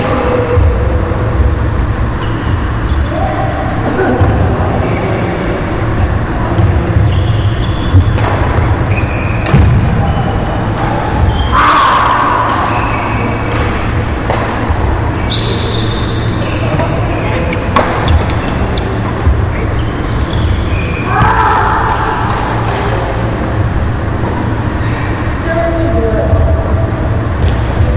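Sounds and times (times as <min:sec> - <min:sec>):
steady low hum: 0:00.0 - 0:27.9
sneakers squeaking on wooden floor: 0:01.4 - 0:03.2, 0:04.2 - 0:05.4, 0:06.6 - 0:11.9, 0:12.5 - 0:13.7, 0:15.1 - 0:21.5, 0:24.2 - 0:25.4
rackets hitting shuttlecock: 0:07.6 - 0:09.8, 0:12.3 - 0:15.2, 0:16.7 - 0:19.3, 0:21.8 - 0:23.2.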